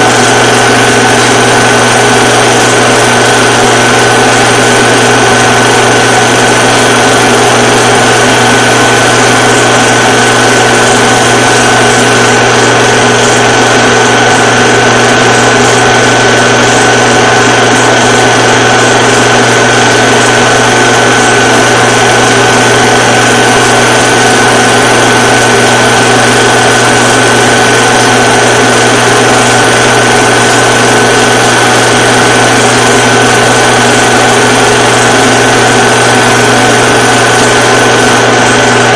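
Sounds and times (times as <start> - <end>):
loud motor whir: 0.0 - 38.9.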